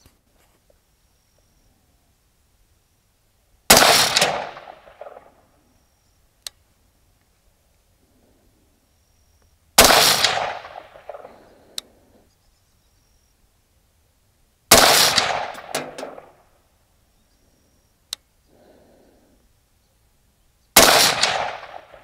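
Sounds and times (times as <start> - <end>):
rifle shots: 3.7 - 5.4, 9.8 - 11.7, 14.7 - 16.4, 20.8 - 22.0
faint sharp tick: 6.4 - 6.6, 11.7 - 11.9, 18.1 - 18.3.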